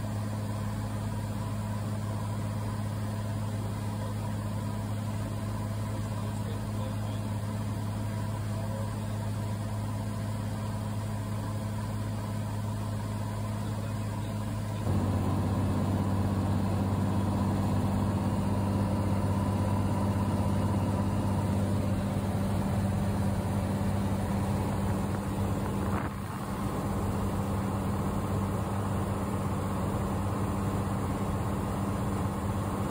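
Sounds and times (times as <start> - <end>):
airplane engine droning: 12.0 - 32.9.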